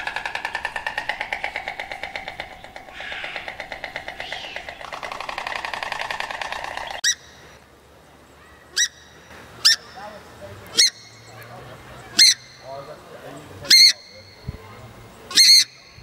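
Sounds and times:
rapid pulsing animal call: 0:00.0 - 0:07.6
swamphen sharp calls: 0:00.0 - 0:16.0.

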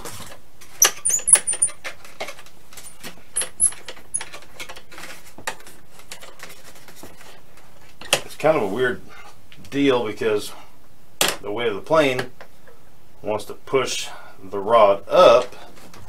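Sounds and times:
short high squeaks: 0:00.8 - 0:01.8, 0:03.4 - 0:04.3.

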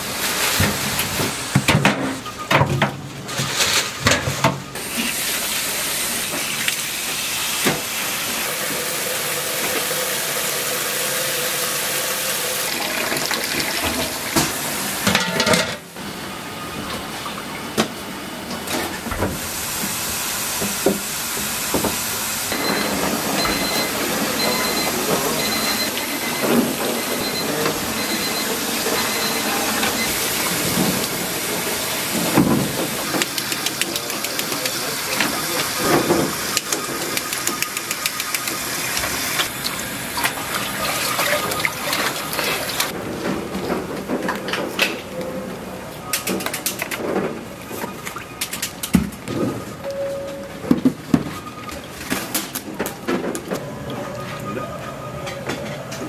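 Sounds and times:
faint beep: 0:49.8 - 0:50.6.

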